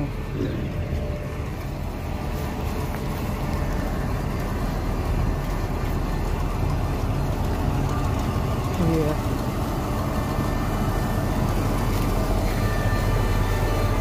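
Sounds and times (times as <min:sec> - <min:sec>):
bus engine running: 0:00.0 - 0:14.0
city traffic rumble: 0:00.0 - 0:14.0.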